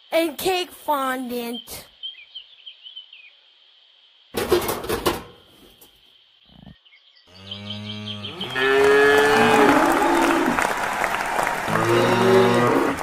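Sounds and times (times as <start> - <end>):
faint birdsong: 0.1 - 4.4, 5.3 - 8.8
cattle mooing: 7.3 - 10.6, 11.7 - 13.0
applause: 8.4 - 13.0.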